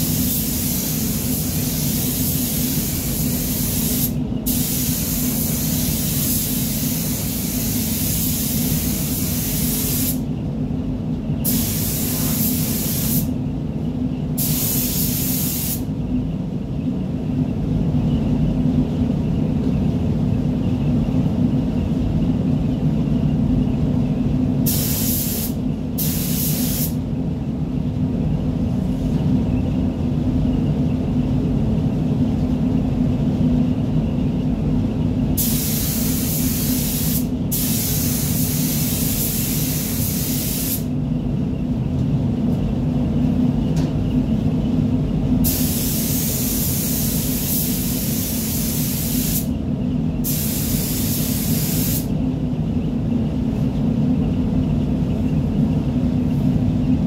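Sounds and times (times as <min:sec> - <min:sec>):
paint spray gun hissing: 0:00.0 - 0:10.2, 0:11.5 - 0:13.3, 0:14.4 - 0:15.8, 0:24.7 - 0:27.0, 0:35.4 - 0:40.9, 0:45.4 - 0:49.5, 0:50.2 - 0:52.1
air extraction low hum: 0:00.0 - 0:57.0.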